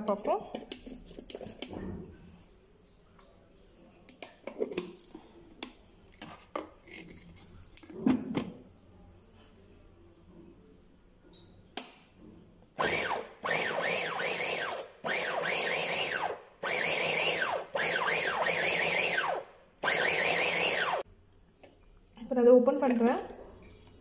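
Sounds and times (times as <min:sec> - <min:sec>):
electric chopper motor whine: 0:12.8 - 0:21.0.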